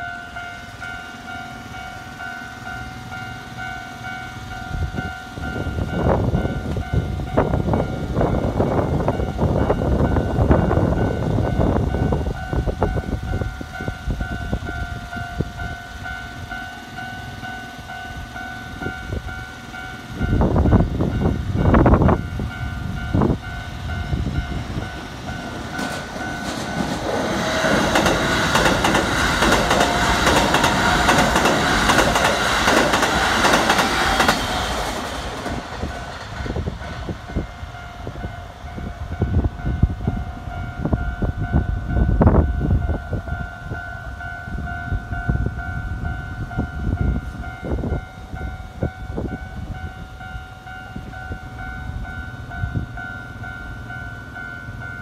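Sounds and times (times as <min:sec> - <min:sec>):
steady ringing tone: 0:00.0 - 0:32.3
train wheels clattering over rails: 0:24.0 - 0:37.6.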